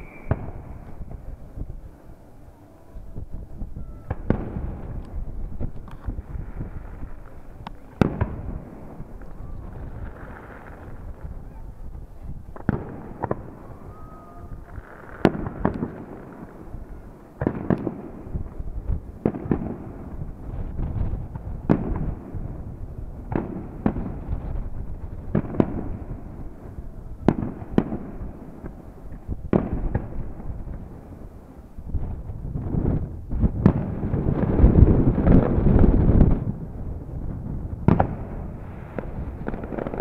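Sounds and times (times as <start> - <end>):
firework whistle: 0.0 - 1.3, 2.6 - 5.0, 13.2 - 16.2
fireworks bursting with sharp bangs: 0.0 - 2.3, 3.0 - 40.0.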